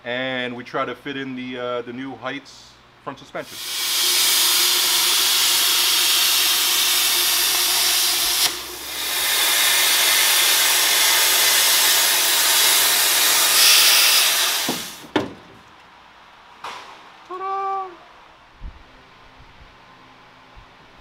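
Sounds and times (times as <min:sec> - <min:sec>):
plasma cutter hissing: 0:03.4 - 0:15.1.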